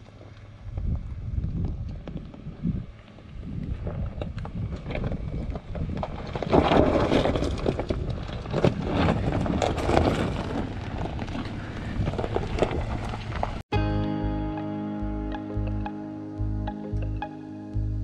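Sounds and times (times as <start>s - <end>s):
tyres crunching on rocks: 4.3s - 13.6s.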